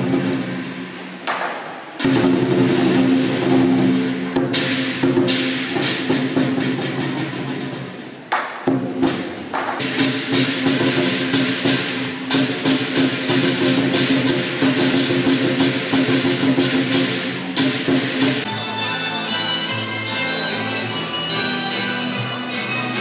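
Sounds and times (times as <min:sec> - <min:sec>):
cymbal crashes: 0:00.0 - 0:08.1, 0:08.7 - 0:18.5
drum beaten fast: 0:02.0 - 0:18.5.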